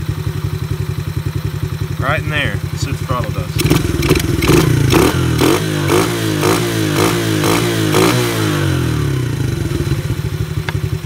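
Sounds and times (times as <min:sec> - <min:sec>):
sharp engine ticking: 0:01.8 - 0:08.3
engine revs falling to idle: 0:02.0 - 0:11.0.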